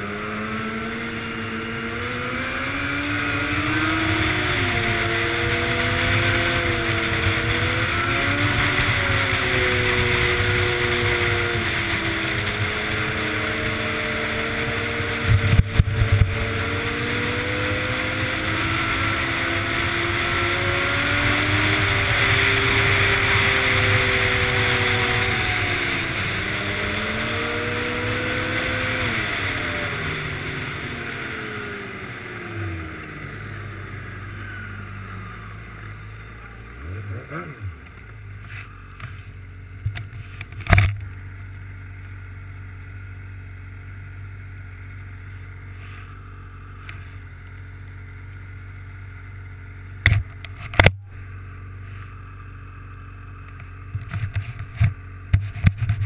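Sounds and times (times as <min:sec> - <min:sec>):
snowmobile engine running: 0:00.0 - 0:56.0
wind rushing over microphone: 0:02.6 - 0:30.2.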